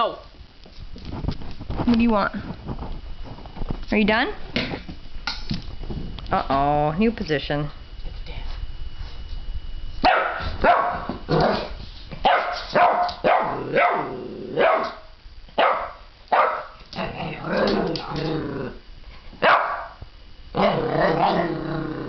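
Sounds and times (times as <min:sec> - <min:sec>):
puppy barking: 0:10.0 - 0:16.8, 0:19.4 - 0:20.0
puppy growling: 0:11.3 - 0:11.8, 0:13.4 - 0:14.9, 0:16.9 - 0:18.8, 0:20.6 - 0:22.0.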